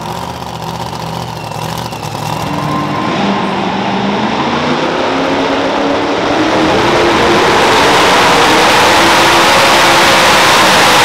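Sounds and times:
truck engine running hard: 0.0 - 11.0.

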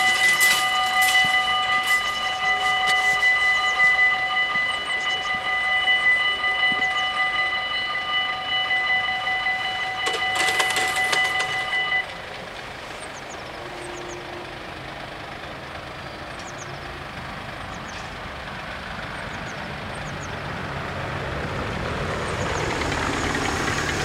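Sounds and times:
level crossing bells ringing: 0.0 - 12.5
barrier arms clattering: 10.0 - 12.0.

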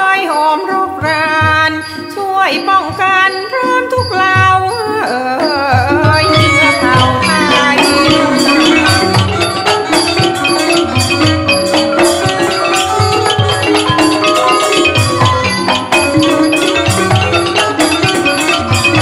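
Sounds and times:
drums and percussion: 0.0 - 19.0
xylophone mallet strokes: 1.0 - 19.0.

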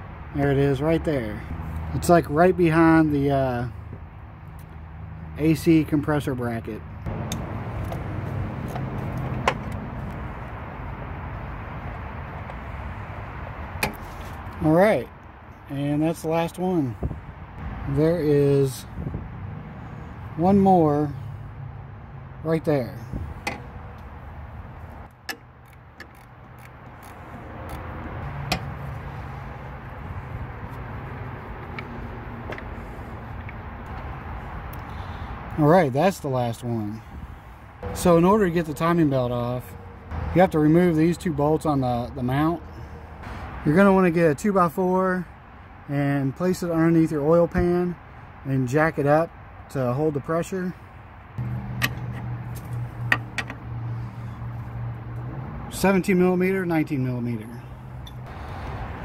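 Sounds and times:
socket working on bolt: 51.4 - 53.6.

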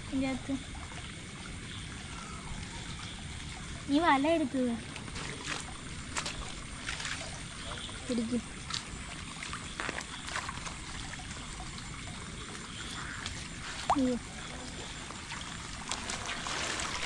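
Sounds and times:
water trickling: 0.0 - 17.0
small splashes and knocks: 4.8 - 17.0.

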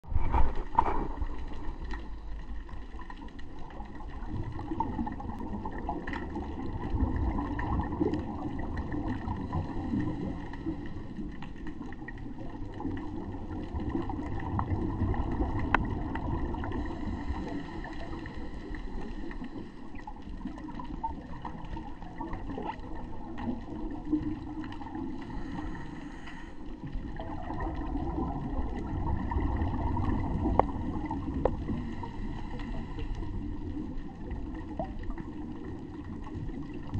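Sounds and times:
scuba exhaust bubbles: 0.0 - 36.9
underwater rumble and gurgle: 0.0 - 36.9
faint clicks: 15.4 - 16.8, 30.2 - 35.2.

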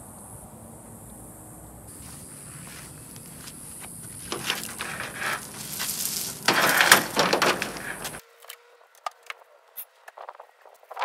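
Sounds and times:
crunching and rustling: 1.9 - 8.2.

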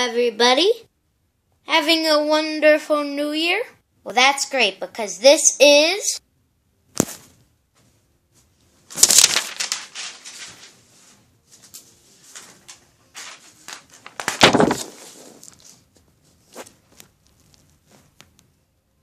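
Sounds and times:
rustling crackling handling noises: 8.4 - 18.5.

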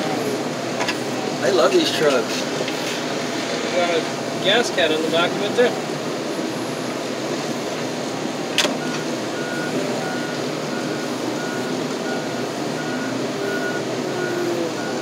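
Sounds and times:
tractor engine running: 0.0 - 15.0
reversing alarm beeping: 8.8 - 15.0.

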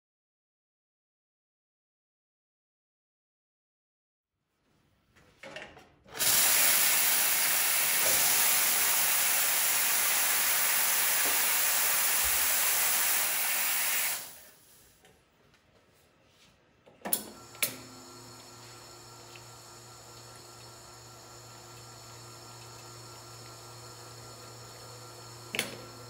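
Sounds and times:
espresso steam wand hissing: 6.2 - 14.5, 17.4 - 26.0.

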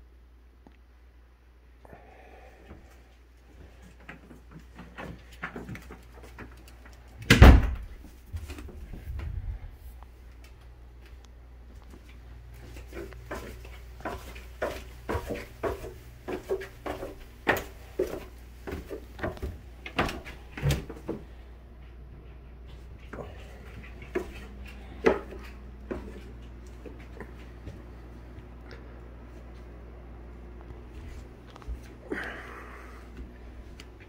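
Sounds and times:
footsteps on wooden stairs: 3.6 - 9.4, 11.0 - 21.4, 22.7 - 28.5.

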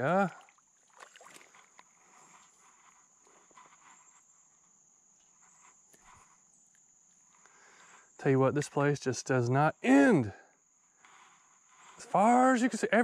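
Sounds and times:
insects droning: 0.0 - 13.0.

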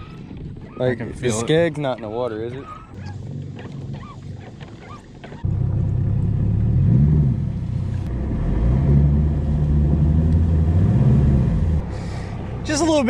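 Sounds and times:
outboard motor running: 0.0 - 8.4, 9.0 - 13.0.

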